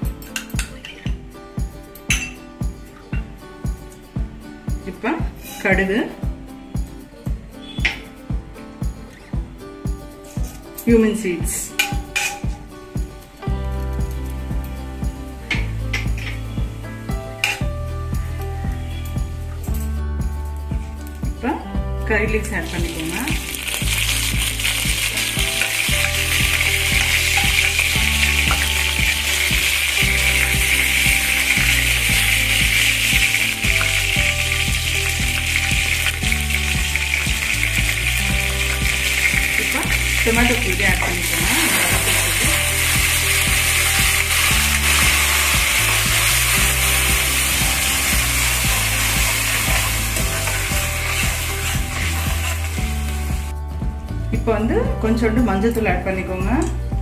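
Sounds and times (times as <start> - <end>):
leaves sizzling in hot oil: 22.3 - 53.5
ladle stirring: 23.5 - 53.2.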